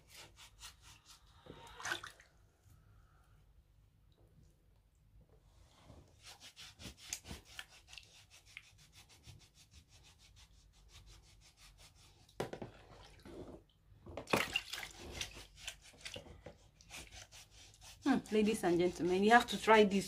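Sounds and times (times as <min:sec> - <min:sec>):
brush scrubbing a wet foot: 0:00.0 - 0:01.7, 0:06.2 - 0:12.3, 0:14.5 - 0:20.0
water splashing in a basin: 0:01.6 - 0:02.4, 0:14.2 - 0:15.3.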